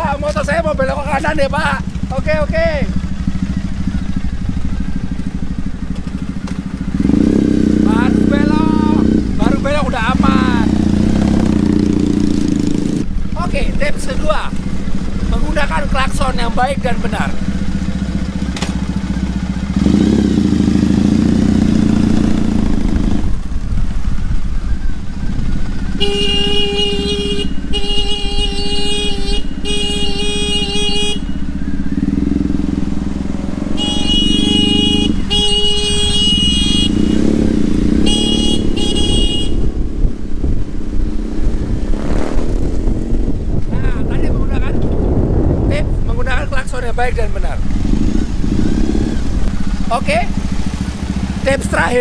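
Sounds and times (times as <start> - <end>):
motorcycle engine running: 0.0 - 52.0
motorcycle horn beeps: 25.9 - 32.5, 33.5 - 39.9.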